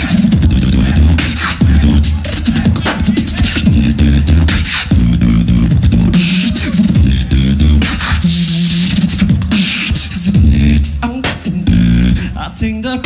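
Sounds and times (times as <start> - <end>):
vocal bass line: 0.0 - 13.0.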